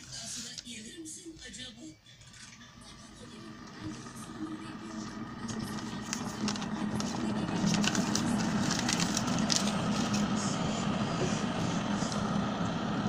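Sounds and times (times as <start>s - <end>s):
paper crackling and rustling: 0.0s - 0.9s, 5.0s - 10.6s
steady low hum: 2.4s - 13.0s.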